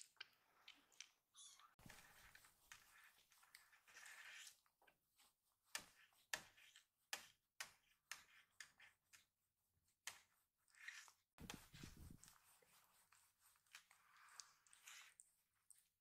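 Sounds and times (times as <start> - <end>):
soft rustles of cloth: 11.4 - 16.0.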